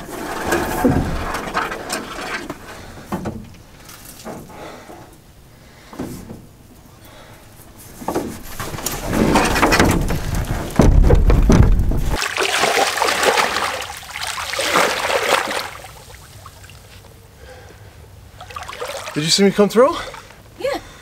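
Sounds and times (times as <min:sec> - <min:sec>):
canoe thumping down: 0:00.0 - 0:05.0, 0:07.9 - 0:13.8
person wading in shallow water: 0:12.1 - 0:16.8, 0:18.4 - 0:19.2.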